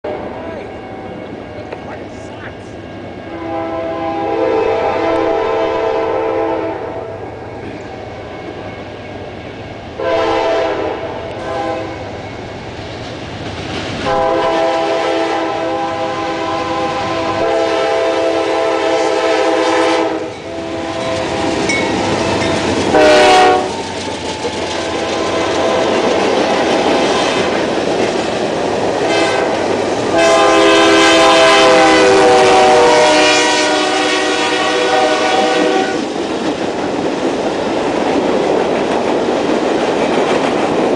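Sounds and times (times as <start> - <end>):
freight train rumbling past: 0.0 - 40.9
locomotive horn blasts: 3.3 - 7.2, 10.0 - 12.0, 14.0 - 21.5, 22.3 - 23.8, 29.0 - 36.0.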